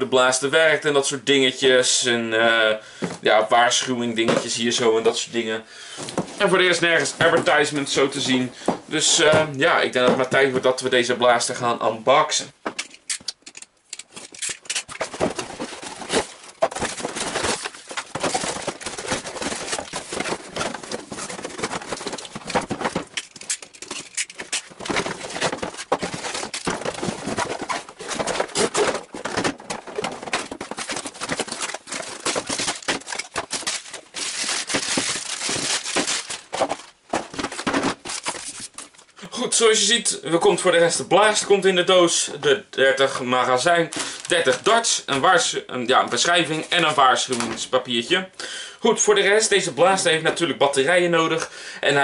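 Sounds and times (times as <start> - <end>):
cardboard scraping and rustling: 6.0 - 10.6, 14.1 - 39.0
plastic bags crinkling: 12.8 - 39.2, 43.7 - 44.7.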